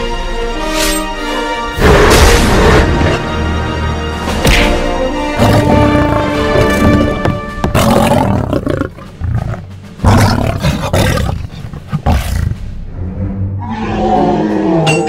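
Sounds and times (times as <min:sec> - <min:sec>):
background music: 0:00.0 - 0:15.0
monster roars: 0:05.4 - 0:07.2.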